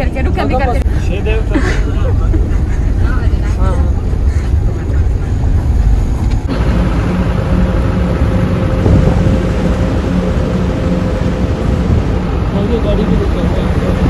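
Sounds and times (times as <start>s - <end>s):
van road and engine rumble: 0.0s - 14.0s.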